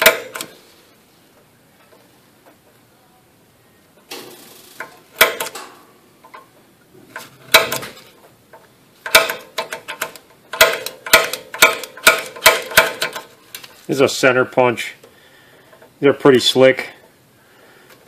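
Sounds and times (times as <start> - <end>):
center punch clicking on steel: 0.0 - 0.5, 4.8 - 6.4, 7.5 - 7.9, 9.0 - 13.3.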